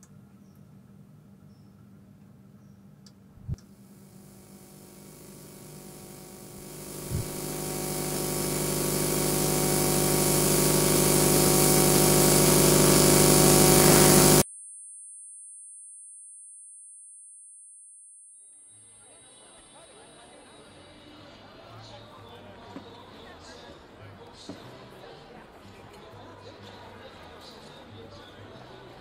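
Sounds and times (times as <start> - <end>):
buzzing grinding drone: 3.8 - 14.4.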